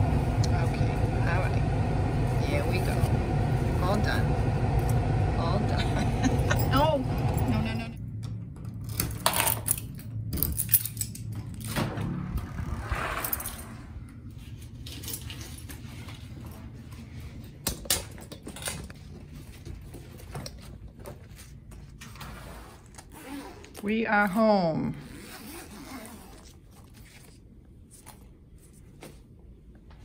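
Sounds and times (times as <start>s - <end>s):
keys jangling: 9.3s - 11.4s.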